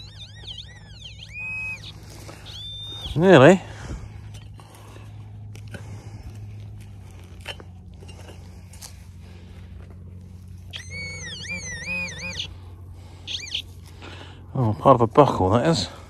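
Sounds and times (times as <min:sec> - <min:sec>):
metal detector warbling tone: 0:00.0 - 0:03.4, 0:10.7 - 0:12.5, 0:13.3 - 0:13.6
steady low hum: 0:00.0 - 0:16.0.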